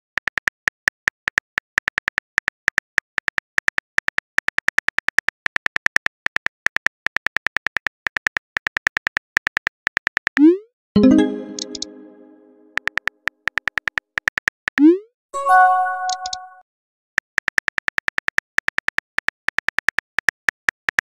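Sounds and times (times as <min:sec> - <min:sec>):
keyboard typing clicks: 0:11.0 - 0:13.0, 0:15.4 - 0:16.6.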